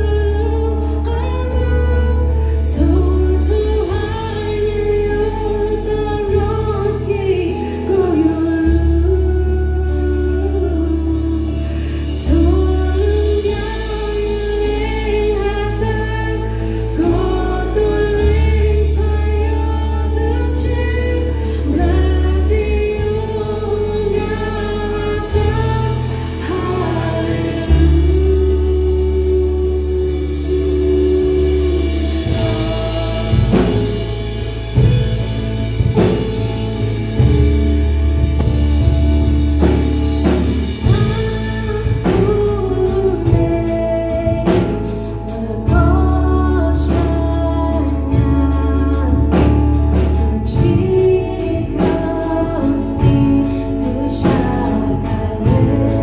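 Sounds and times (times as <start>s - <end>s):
person singing: 0.0s - 35.2s, 39.6s - 56.0s
bass: 0.0s - 56.0s
guitars: 0.0s - 56.0s
keyboard: 0.0s - 56.0s.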